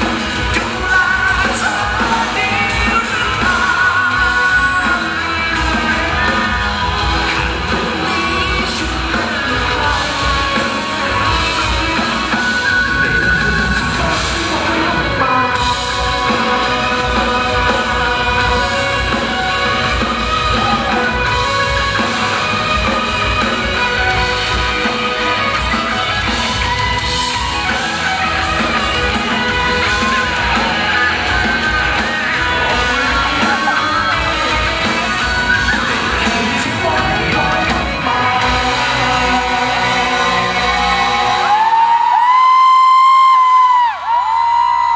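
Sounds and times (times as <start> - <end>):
man singing into a microphone: 0.0 - 21.5, 29.8 - 42.1
live rock band playing: 0.0 - 44.9.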